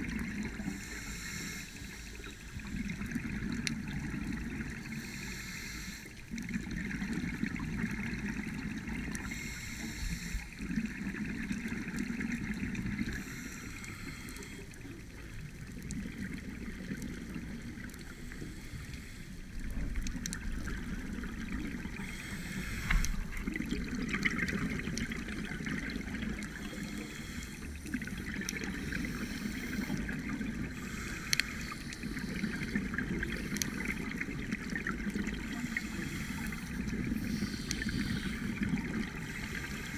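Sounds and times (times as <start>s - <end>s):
scuba regulator bubbles: 0.0s - 39.9s
muffled underwater noise: 8.6s - 39.9s.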